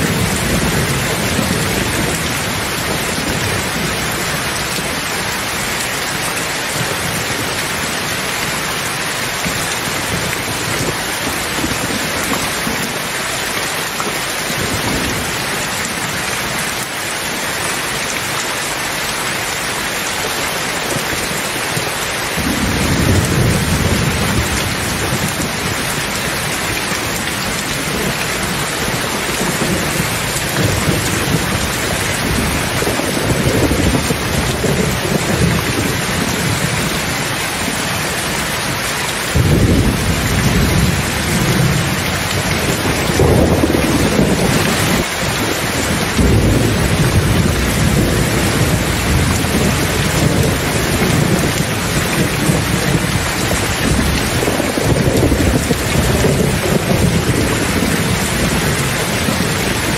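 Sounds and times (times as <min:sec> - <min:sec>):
rolling thunder: 0:00.0 - 0:05.2, 0:22.4 - 0:37.7, 0:39.3 - 0:59.9
heavy rain pouring: 0:00.0 - 0:59.9.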